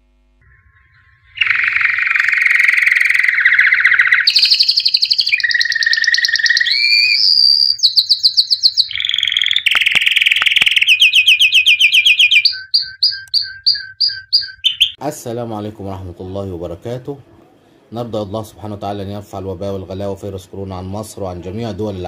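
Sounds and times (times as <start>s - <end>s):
songbird trilling: 0.4s - 15.0s.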